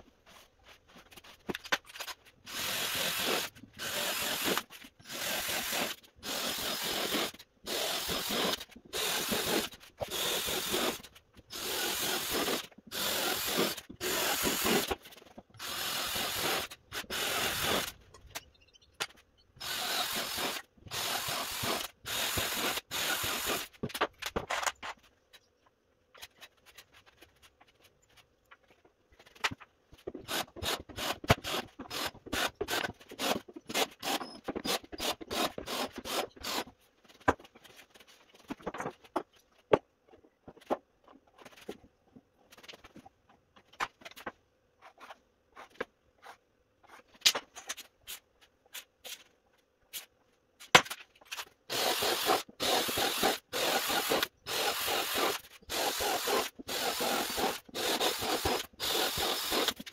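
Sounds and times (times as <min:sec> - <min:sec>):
cordless drill whirring: 0:02.5 - 0:14.7, 0:15.6 - 0:17.9, 0:19.6 - 0:23.6, 0:51.7 - 0:59.8.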